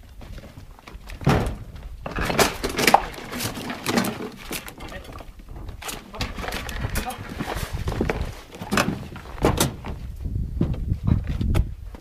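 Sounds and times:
footsteps on rubble: 0.0s - 12.0s
bricks and metal sheets clattering: 1.2s - 9.9s.

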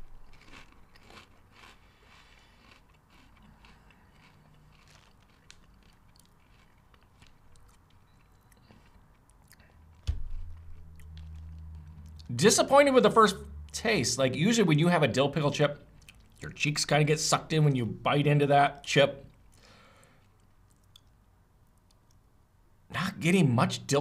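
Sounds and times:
person chewing crunchy chip: 0.0s - 12.3s, 16.0s - 16.4s, 19.3s - 21.2s
low hum: 9.7s - 14.0s
sudden low thump: 10.0s - 11.0s.

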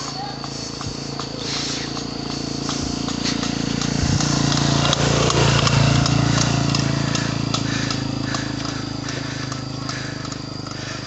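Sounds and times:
motorcycle engine running: 0.0s - 11.0s
motorcycle passing close by: 0.0s - 11.0s.

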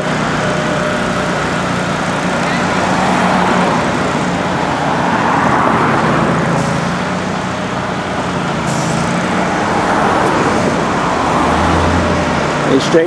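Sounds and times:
vehicle engines idling: 0.0s - 13.0s.

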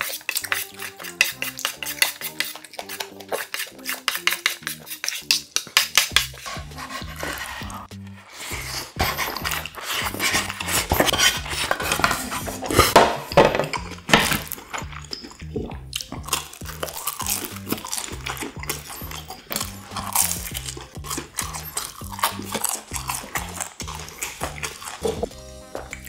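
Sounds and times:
wooden spoon scraping plate: 0.0s - 14.9s
chewing: 0.0s - 26.0s
background music with bass beat: 6.2s - 26.0s.

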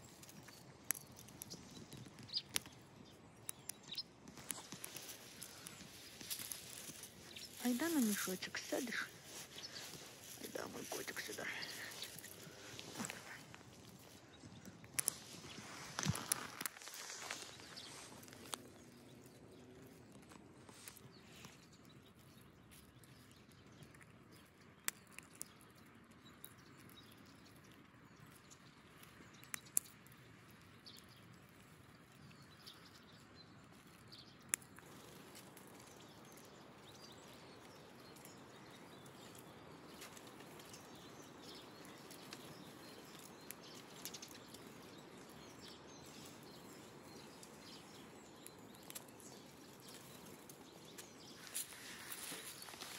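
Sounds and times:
squirrel rustling in cloth sack: 4.2s - 19.2s, 34.8s - 52.9s.

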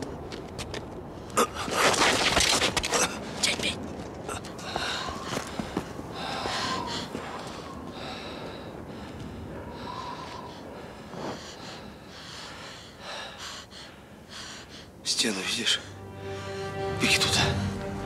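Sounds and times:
person breathing hard: 4.6s - 15.0s.

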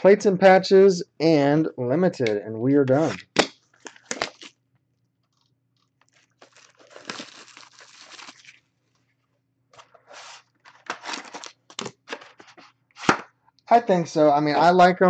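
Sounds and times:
plastic shrink-wrap crinkling and tearing: 3.7s - 4.6s, 5.3s - 8.7s.

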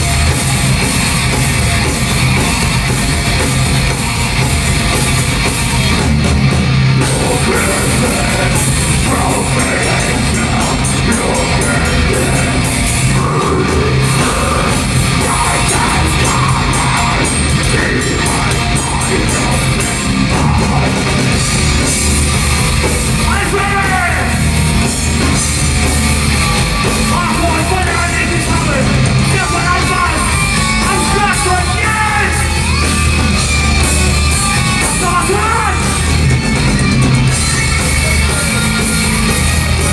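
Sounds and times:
distorted guitar and drums: 0.0s - 39.9s
shouted vocals: 7.0s - 21.2s, 23.2s - 24.6s, 27.0s - 36.3s.

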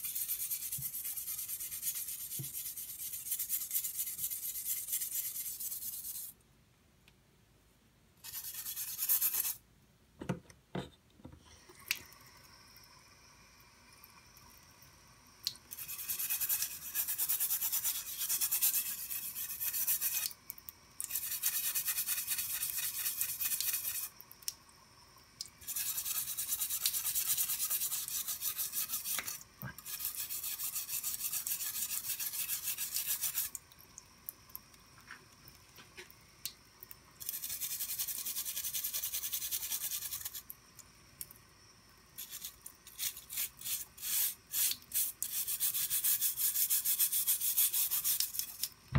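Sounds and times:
knife blade scrubbed with abrasive: 8.2s - 9.6s, 15.7s - 20.3s, 21.1s - 24.1s, 25.6s - 33.6s, 37.2s - 40.4s, 42.2s - 48.7s
faint faucet stream: 11.3s - 48.9s.

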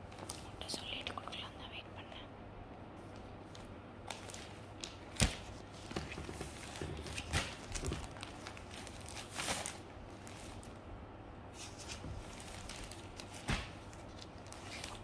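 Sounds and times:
low steady hum: 0.0s - 15.0s
rustle of clothing packaging: 3.0s - 10.8s, 11.5s - 15.0s.

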